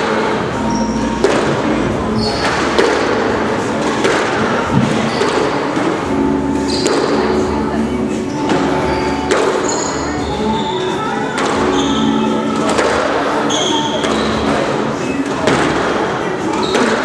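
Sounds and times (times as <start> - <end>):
racket hitting squash ball: 0.0 - 10.7, 11.3 - 17.0
large hall background noise: 0.0 - 17.0
ball hitting walls and floor: 1.2 - 6.1, 6.7 - 7.4, 8.4 - 9.8, 11.4 - 14.6.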